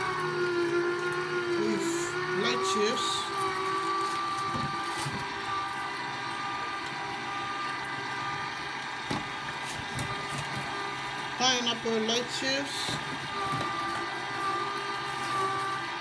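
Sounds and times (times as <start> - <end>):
juicer motor humming and whining: 0.0 - 16.0.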